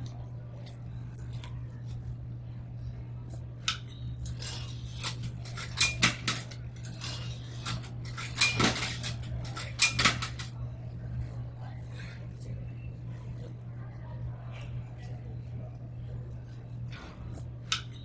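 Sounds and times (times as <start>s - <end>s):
low steady hum: 0.0s - 18.0s
coins clinking in machine: 4.2s - 10.5s.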